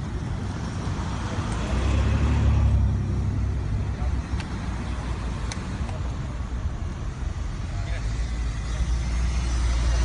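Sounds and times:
cars driving past: 0.0s - 10.0s.

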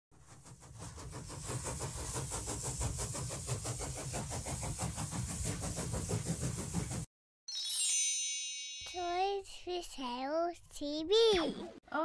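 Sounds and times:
steam train chugging: 0.2s - 7.1s
steady steam hiss: 0.9s - 6.8s.

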